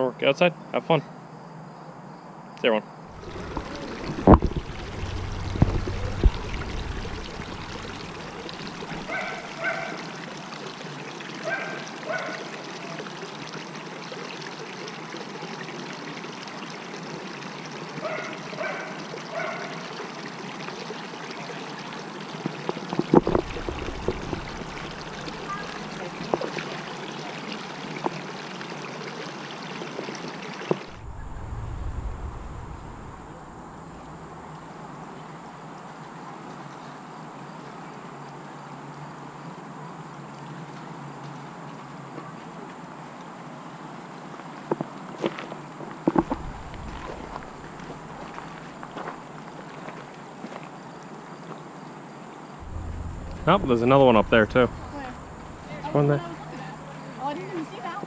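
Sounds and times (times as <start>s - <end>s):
water pouring into pool: 3.1s - 35.1s, 46.1s - 49.9s.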